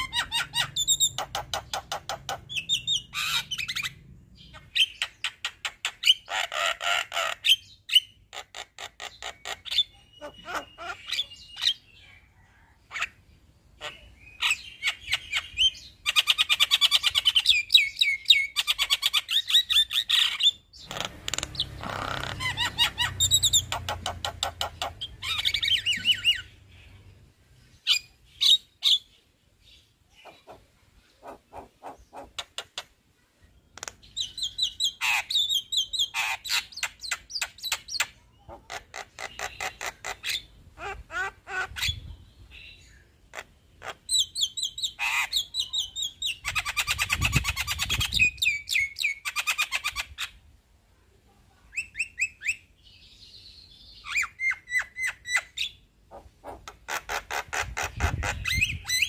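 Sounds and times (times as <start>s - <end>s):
myna singing chatter and trills: 30.0s - 33.0s.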